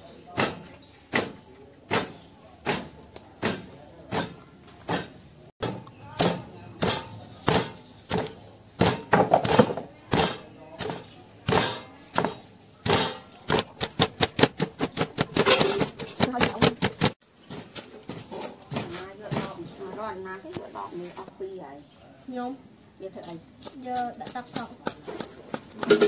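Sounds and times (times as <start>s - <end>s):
pestle pounding in stone mortar: 0.4s - 19.6s, 23.6s - 26.0s.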